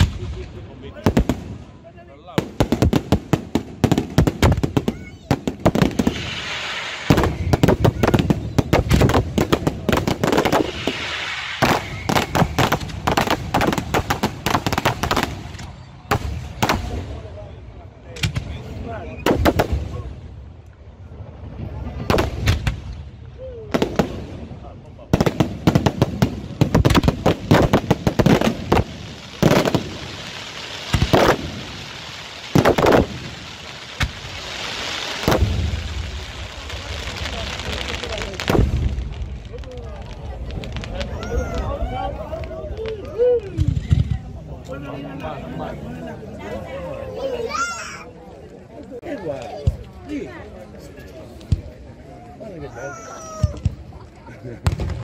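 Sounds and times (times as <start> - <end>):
fireworks bangs: 0.0 - 17.4, 18.1 - 20.5, 21.5 - 45.2, 53.2 - 55.0
fireworks hissing crackle: 0.0 - 17.4, 18.1 - 55.0
firework shells bursting: 25.2 - 37.4.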